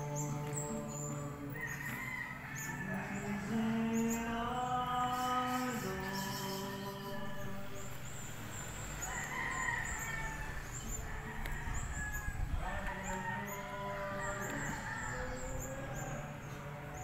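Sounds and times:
rooster crowing: 0:01.5 - 0:04.1, 0:08.9 - 0:16.4.

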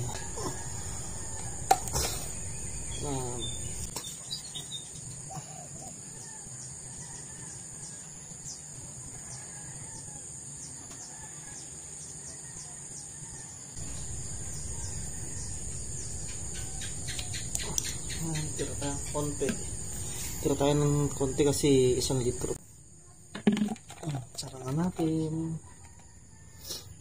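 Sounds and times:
crickets trilling: 0:00.0 - 0:27.0
bird chirps: 0:01.3 - 0:06.7, 0:13.8 - 0:20.3.

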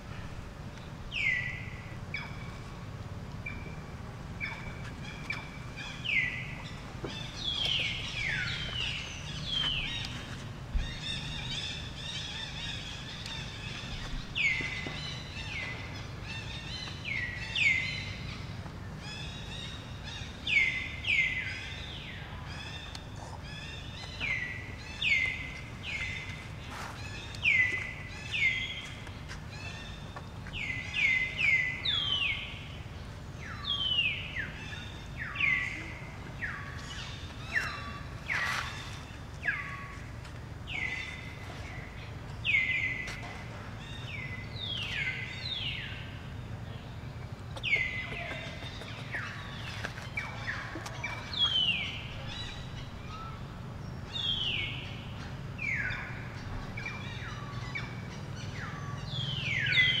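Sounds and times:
low outdoor rumble: 0:00.0 - 1:00.0.

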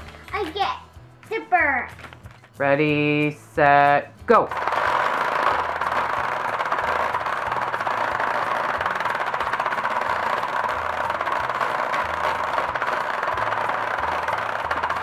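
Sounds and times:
plastic bugs rattling: 0:04.4 - 0:15.0
toy motor shaking plastic bed: 0:04.4 - 0:15.0.

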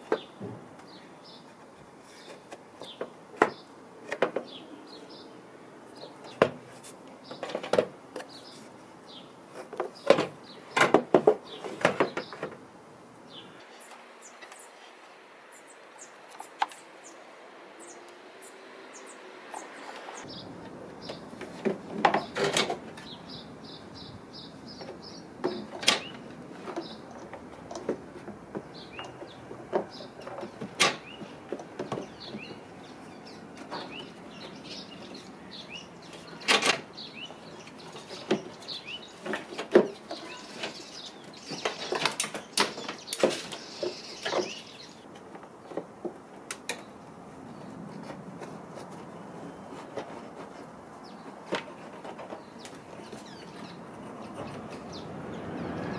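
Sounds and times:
bird chirping: 0:13.2 - 0:27.9, 0:28.6 - 0:45.8, 0:49.2 - 0:55.9.

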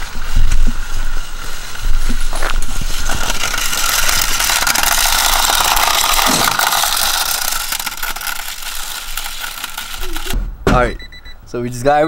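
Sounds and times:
metal box scraping on concrete: 0:01.9 - 0:10.4.

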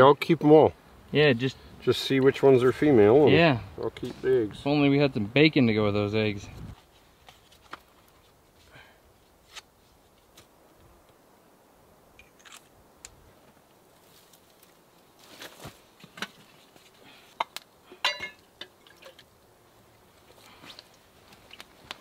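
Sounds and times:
campfire twigs crackling: 0:00.4 - 0:11.2, 0:12.1 - 0:22.0
metal pot clinking: 0:17.9 - 0:19.2.

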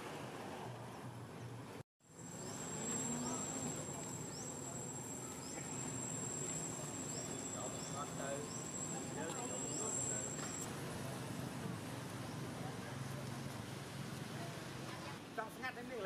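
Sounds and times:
high-pitched insect drone: 0:02.1 - 0:10.6.

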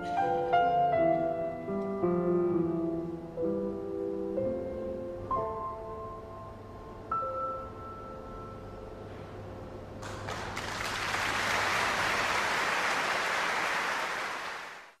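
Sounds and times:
audience applause: 0:10.0 - 0:15.0.

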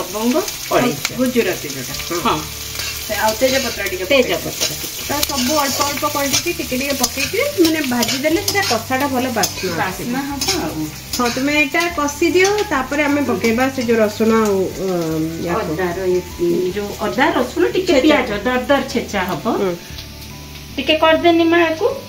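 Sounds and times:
onions sizzling in oil: 0:00.0 - 0:22.0
metal spatula scraping pan: 0:02.0 - 0:14.5.

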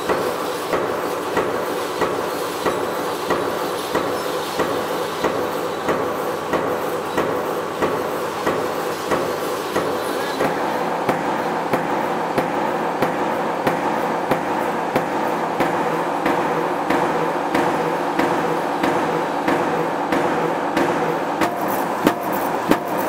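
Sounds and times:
machine humming: 0:08.1 - 0:23.0.

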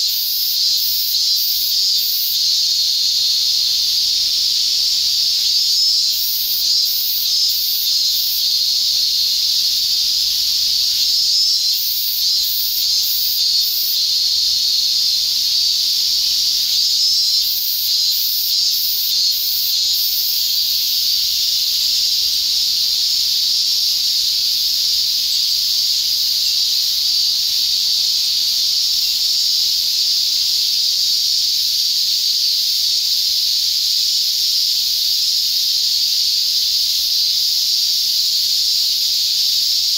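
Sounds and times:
fast pulsing insect buzz: 0:00.0 - 0:02.5
insect chorus buzzing: 0:00.0 - 0:39.9.

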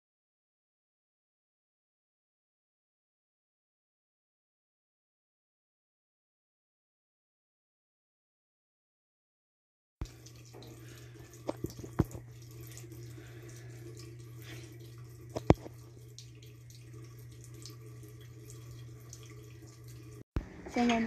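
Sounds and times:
faucet trickling into sink: 0:10.0 - 0:20.2.

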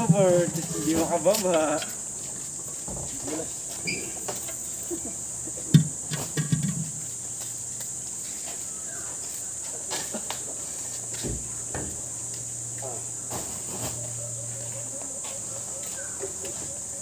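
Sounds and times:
insects droning: 0:00.0 - 0:17.0
knocks and bumps of containers: 0:05.7 - 0:07.1.

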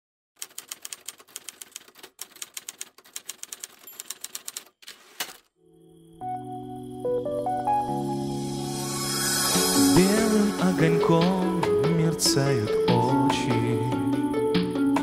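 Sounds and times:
typewriter key clicks: 0:00.4 - 0:05.4
instrumental music with sustained chords: 0:05.6 - 0:15.0.

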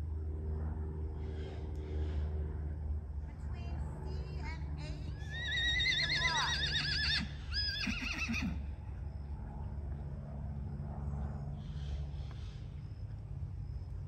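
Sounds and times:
faint low background hum: 0:00.0 - 0:14.0
horse whinnying: 0:05.3 - 0:08.6.

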